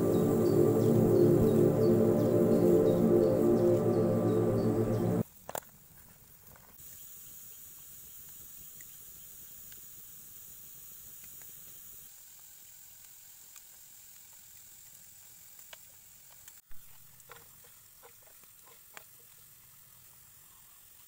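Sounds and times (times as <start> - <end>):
wood fire hissing: 6.8 - 16.6.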